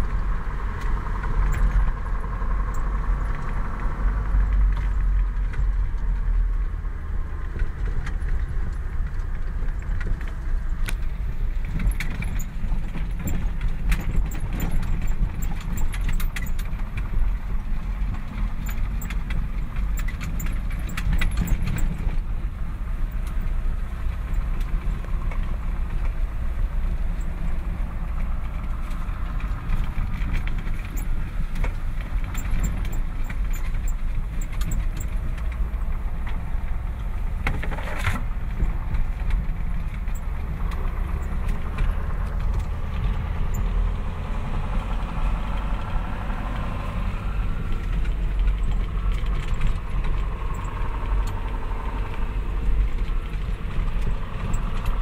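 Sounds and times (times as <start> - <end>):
diesel truck engine running: 0.0 - 55.0
clicks and rattles in cab: 7.4 - 43.7, 47.5 - 55.0.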